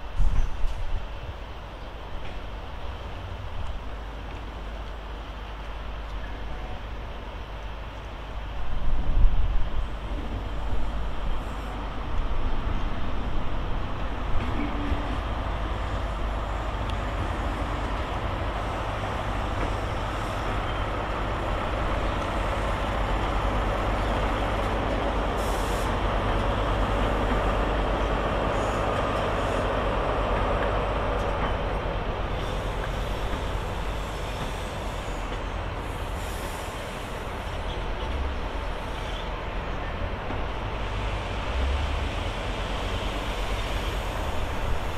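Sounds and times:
diesel train rolling past: 0:00.0 - 0:44.9.

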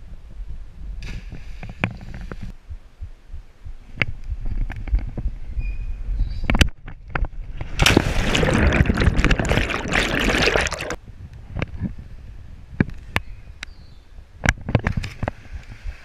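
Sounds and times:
wind buffeting microphone: 0:00.0 - 0:10.0, 0:11.0 - 0:16.0
water drips and small splashes: 0:07.2 - 0:11.0
churning bubbling water underwater: 0:07.6 - 0:11.0
body hitting water: 0:07.7 - 0:11.0.

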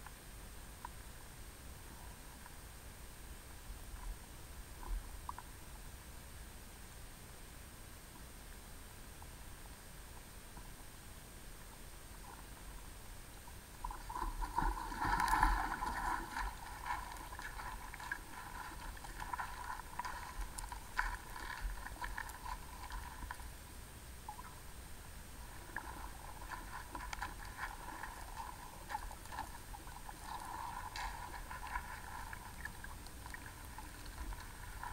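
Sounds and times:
underwater creek gurgling: 0:11.6 - 0:34.9.

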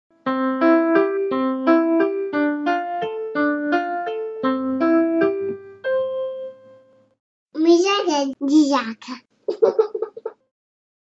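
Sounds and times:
electric piano notes: 0:00.3 - 0:07.0.

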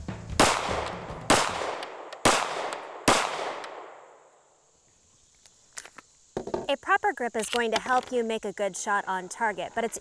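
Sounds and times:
pistol shots echoing: 0:00.4 - 0:04.0.

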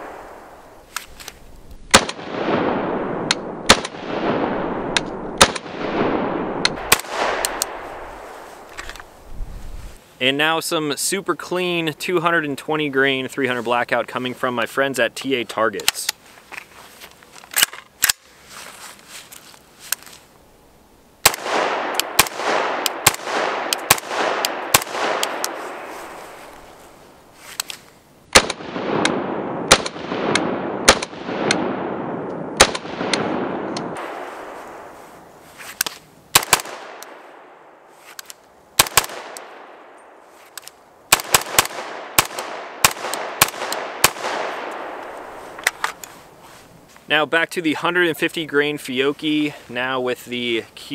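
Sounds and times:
rifle shots with echo: 0:00.0 - 0:00.8, 0:01.9 - 0:08.7, 0:21.2 - 0:26.6, 0:28.3 - 0:35.0, 0:36.3 - 0:37.8, 0:38.8 - 0:40.2, 0:41.1 - 0:45.8.

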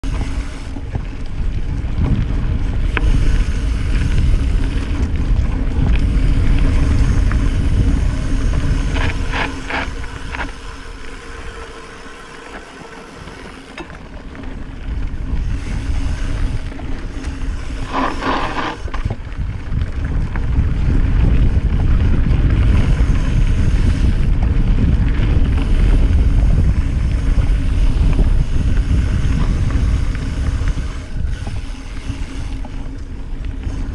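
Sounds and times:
bike rattling over trail: 0:00.0 - 0:33.9
bike tyres rumbling on dirt: 0:00.0 - 0:33.9
wind buffeting microphone: 0:00.0 - 0:33.9.

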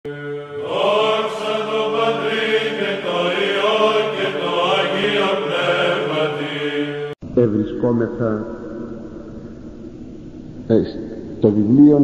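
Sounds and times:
choir chanting slow melody: 0:00.0 - 0:07.2
held vocal drone: 0:00.0 - 0:08.3.

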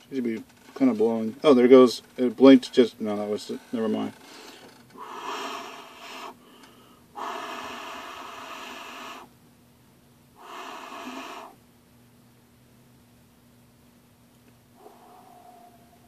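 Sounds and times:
person blowing breath: 0:04.3 - 0:09.3, 0:10.4 - 0:11.6.

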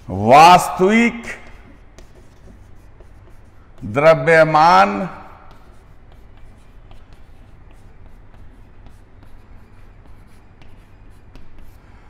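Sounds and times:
chalk scratching on chalkboard: 0:00.0 - 0:12.0
low steady hum: 0:00.0 - 0:12.0.

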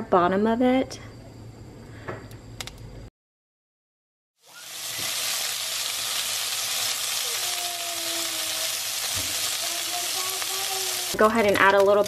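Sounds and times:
meat sizzling in oil: 0:04.4 - 0:12.0.

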